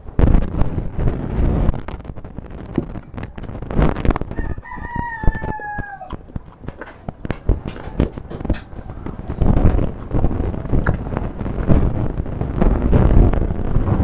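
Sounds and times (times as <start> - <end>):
rooster crowing: 4.2 - 9.5.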